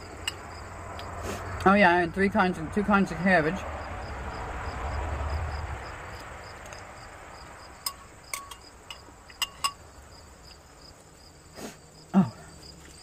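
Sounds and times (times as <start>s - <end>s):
cricket chirping: 0.0s - 13.0s
rushing noise: 3.4s - 8.2s
spoon clinking on a ceramic bowl: 7.8s - 9.8s.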